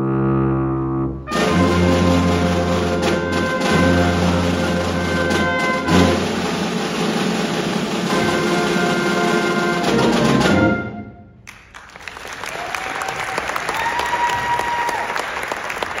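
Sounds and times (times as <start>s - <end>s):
audience applauding: 11.4s - 16.0s.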